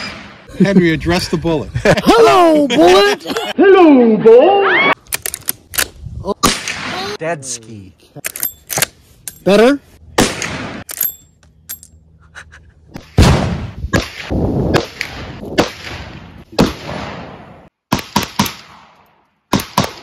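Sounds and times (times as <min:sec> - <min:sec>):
rifle shot: 0:10.2 - 0:10.9, 0:13.2 - 0:20.0.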